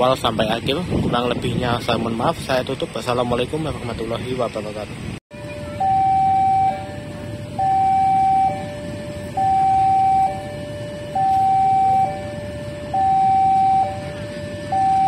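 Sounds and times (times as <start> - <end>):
low steady rumble: 0.0 - 15.0
electronic two-tone siren: 5.3 - 15.0.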